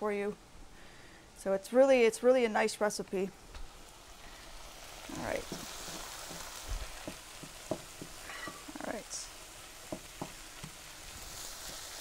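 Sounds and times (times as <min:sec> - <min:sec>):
vegetables sizzling in a skillet: 0:01.8 - 0:12.0
utensil tapping and scraping pan: 0:05.4 - 0:08.7, 0:09.9 - 0:10.8.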